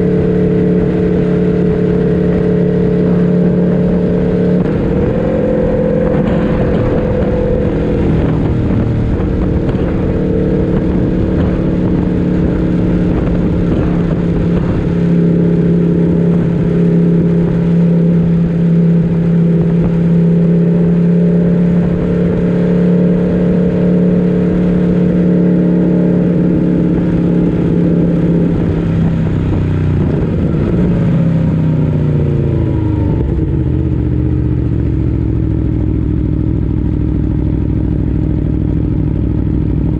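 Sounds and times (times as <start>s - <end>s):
motorcycle engine at steady revs: 0.0s - 39.9s.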